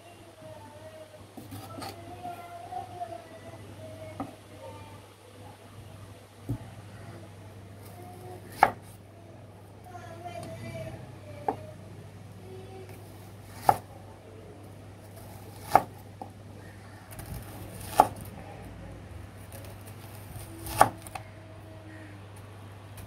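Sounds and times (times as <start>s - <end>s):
knife slicing onion: 1.4s - 2.0s, 7.8s - 9.0s, 13.0s - 13.9s, 15.1s - 16.0s, 17.1s - 18.3s, 19.6s - 21.2s.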